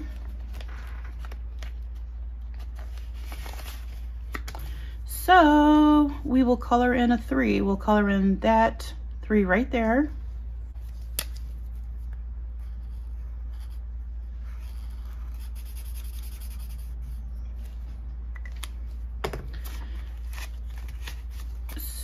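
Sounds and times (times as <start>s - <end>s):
steady low hum: 0.0s - 22.0s
marker scratching on paper: 12.6s - 17.4s.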